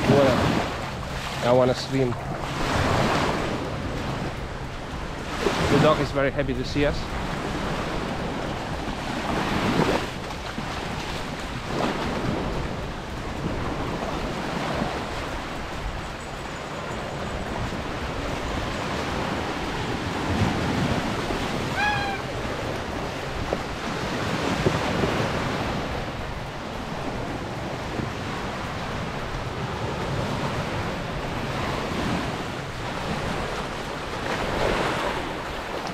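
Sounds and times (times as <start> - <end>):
waves washing onto beach: 0.0 - 35.9
wind buffeting microphone: 0.0 - 35.9
high-pitched call: 21.6 - 22.4.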